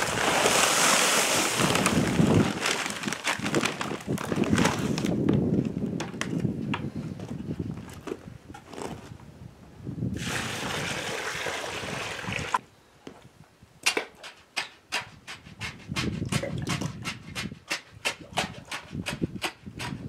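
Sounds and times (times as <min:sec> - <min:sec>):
water pouring from bucket: 0:00.0 - 0:03.6, 0:10.2 - 0:12.6
stick tapping in wet concrete: 0:13.8 - 0:20.0.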